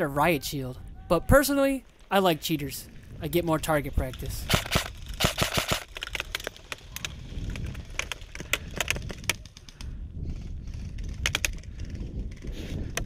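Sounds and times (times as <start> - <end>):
airsoft gunshots: 4.4 - 5.9.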